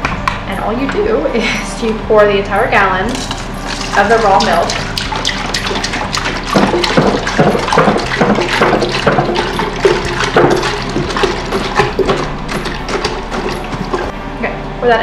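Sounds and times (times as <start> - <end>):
jug glugging: 3.2 - 14.1
milk pouring into metal pot: 3.7 - 14.1.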